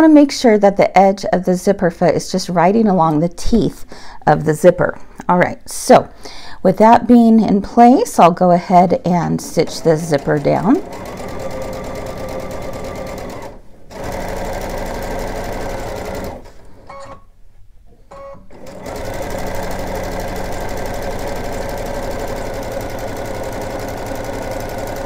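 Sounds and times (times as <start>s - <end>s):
sewing machine stitching: 9.4s - 17.2s, 18.1s - 25.0s.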